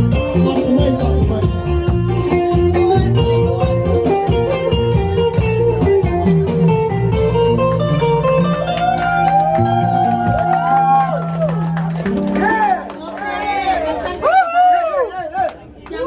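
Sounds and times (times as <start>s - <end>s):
bass line and steady beat: 0.0s - 12.8s
electric guitar melody: 0.0s - 14.1s.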